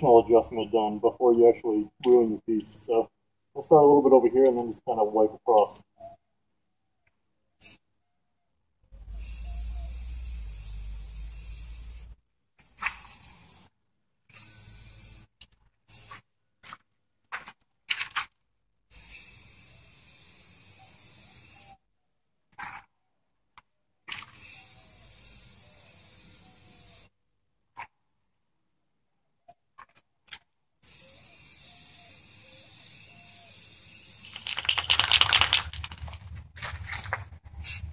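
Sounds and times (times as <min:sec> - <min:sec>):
spray can hissing: 0:07.6 - 0:07.8, 0:09.0 - 0:13.7, 0:14.3 - 0:15.3, 0:15.9 - 0:16.2, 0:18.9 - 0:21.8, 0:24.1 - 0:27.1, 0:30.8 - 0:36.3, 0:37.5 - 0:37.9.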